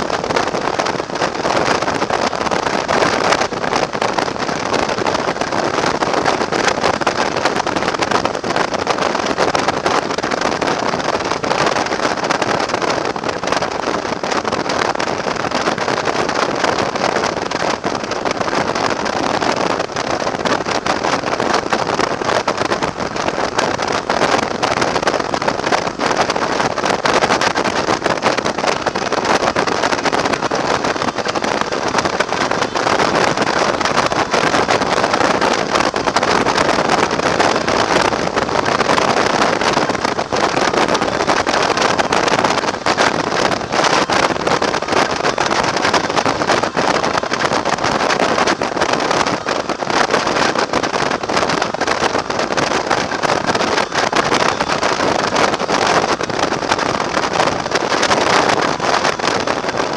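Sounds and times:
motorcycle road noise: 0.0 - 59.9
wind buffeting microphone: 0.0 - 59.9.

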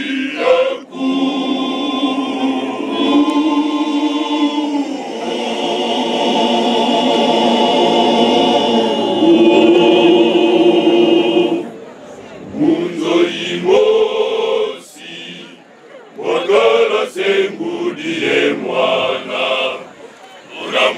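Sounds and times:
men's choir singing in harmony: 0.0 - 11.8, 12.4 - 15.6, 16.2 - 20.9.

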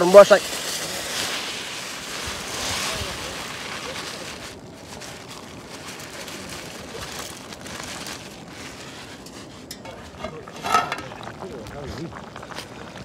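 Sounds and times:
rice pouring into water: 0.0 - 9.3
plastic bag rustling: 0.0 - 11.2.

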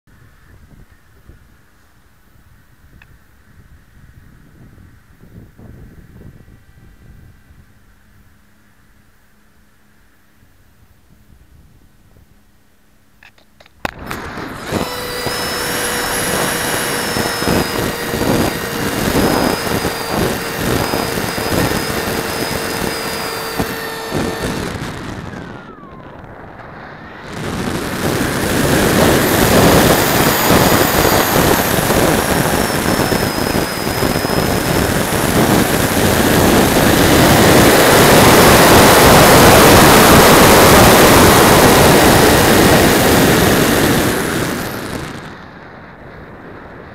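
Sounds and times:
electric motor high whine: 13.8 - 45.5
wind rushing past: 13.9 - 45.4.

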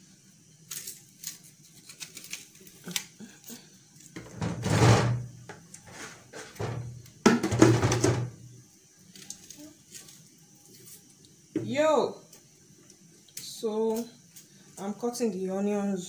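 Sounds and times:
rustling scrapes: 4.4 - 5.2, 5.8 - 6.9.

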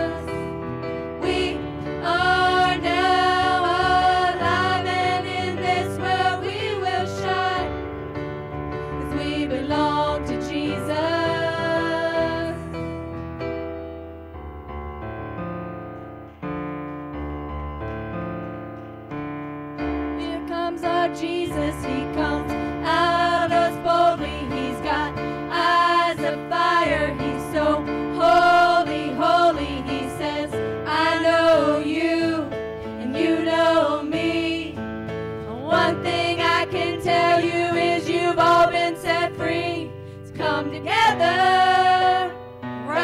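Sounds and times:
electric keyboard chords: 0.0 - 43.0
woman singing: 20.2 - 34.2.

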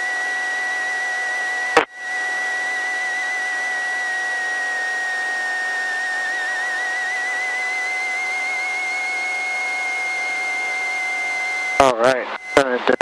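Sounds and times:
faint steady tones: 0.0 - 13.0
helicopter engine whine: 0.0 - 13.0
intercom hiss: 11.8 - 13.0.

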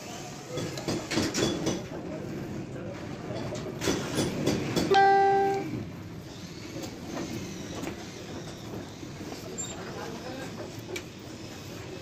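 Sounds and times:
workshop background noise: 0.0 - 12.0
short horn blast: 4.9 - 5.8.

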